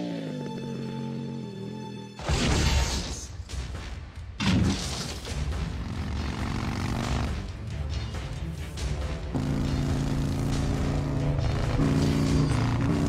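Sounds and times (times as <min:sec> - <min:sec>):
motorcycle engine running hard: 0:05.8 - 0:07.5, 0:09.3 - 0:13.0.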